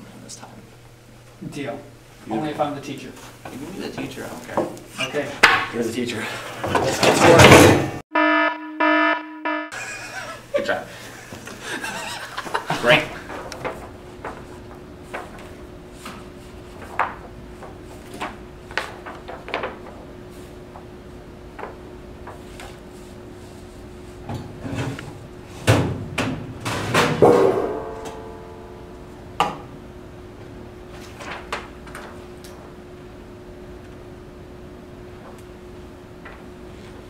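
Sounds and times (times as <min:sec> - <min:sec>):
papers handled at desk: 0:13.4 - 0:20.5, 0:30.9 - 0:32.4.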